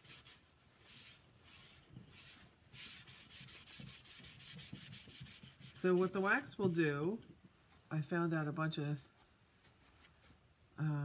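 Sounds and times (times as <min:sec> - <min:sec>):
cloth wiping strokes: 0:00.0 - 0:06.8, 0:09.1 - 0:10.5.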